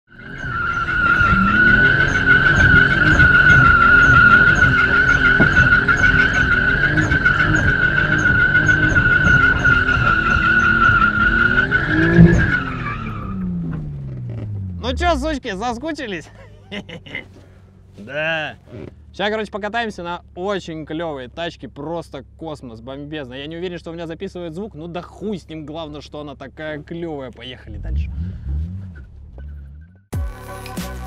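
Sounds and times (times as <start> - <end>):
tyres squealing: 0.1 - 15.2, 16.2 - 19.1
car engine at high revs: 0.1 - 15.5, 16.7 - 19.3, 27.6 - 29.9.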